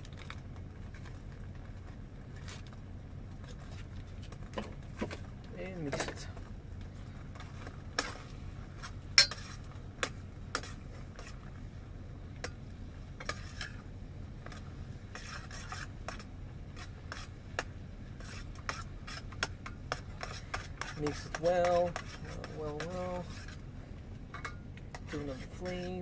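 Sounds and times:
steady low hum: 0.0s - 26.0s
metal fork scraping a steel pot: 9.2s - 9.7s, 13.2s - 13.8s, 14.5s - 17.3s, 18.2s - 23.6s, 24.4s - 26.0s.

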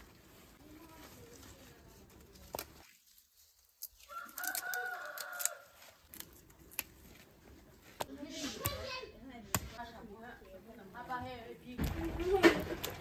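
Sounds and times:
rooster crowing: 4.1s - 5.8s.

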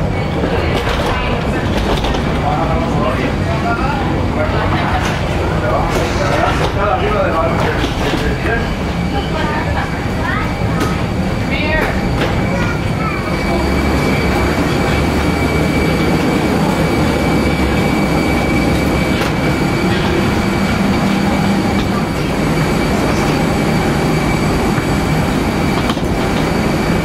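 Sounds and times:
aircraft auxiliary power unit rumble: 0.0s - 27.0s
high whine: 8.6s - 27.0s.

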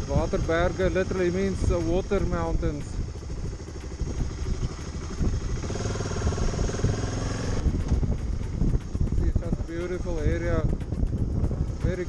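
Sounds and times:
low wind rumble: 0.0s - 12.0s
motorcycle engine running: 0.0s - 12.0s.

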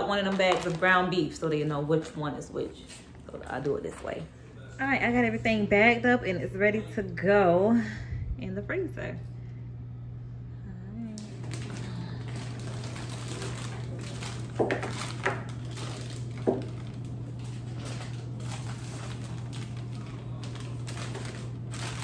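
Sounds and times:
plastic bags rustling: 0.0s - 4.3s, 11.2s - 22.0s
steady low hum: 0.0s - 22.0s.

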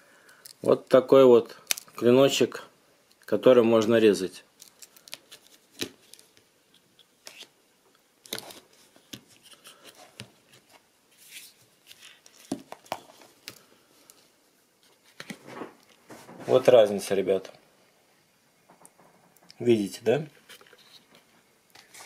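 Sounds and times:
soft scraping and rustling: 8.4s - 17.2s, 18.7s - 22.0s.

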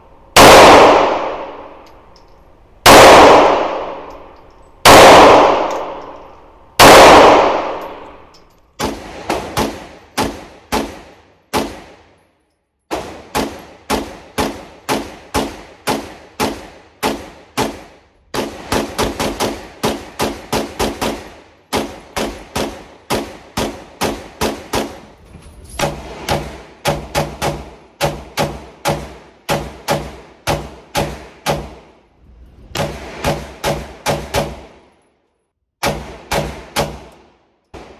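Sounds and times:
pistol shots echoing indoors: 0.3s - 2.0s, 2.8s - 25.1s, 25.8s - 32.0s.

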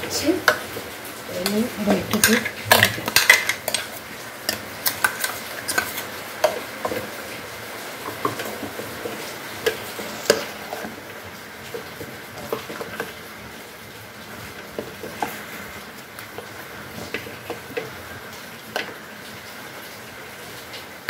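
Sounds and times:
metal spoon clinking and scraping: 1.4s - 6.6s.

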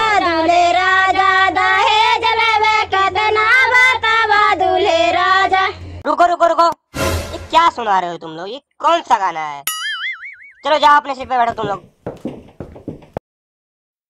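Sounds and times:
girls singing in unison: 0.0s - 5.8s.

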